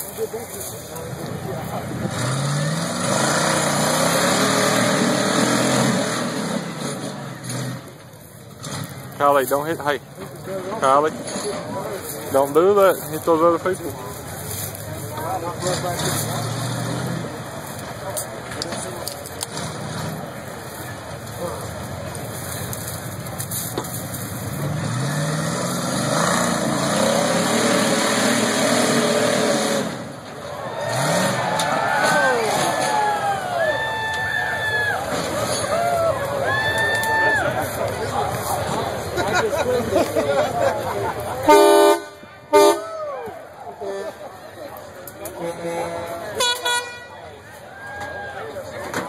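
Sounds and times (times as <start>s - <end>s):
buggy engine revving: 0.0s - 33.6s.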